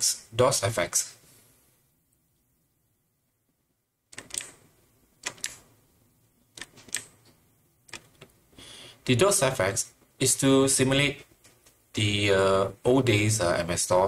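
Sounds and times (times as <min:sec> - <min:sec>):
sharp typewriter-like clicks: 0:04.1 - 0:04.6, 0:05.2 - 0:05.7, 0:06.6 - 0:07.2, 0:07.9 - 0:08.3.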